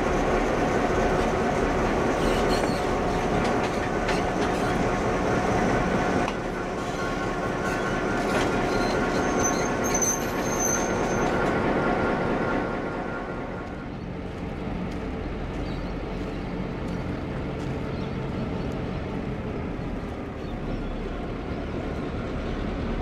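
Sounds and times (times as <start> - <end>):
diesel locomotive rumbling: 0.0 - 23.0
high squeals: 6.8 - 11.5
distant low engine hum: 11.4 - 23.0.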